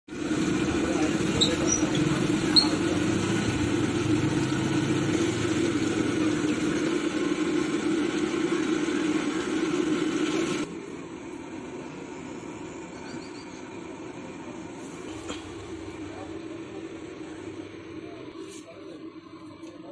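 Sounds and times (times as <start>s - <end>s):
food deep-frying in hot oil: 0.1s - 10.7s.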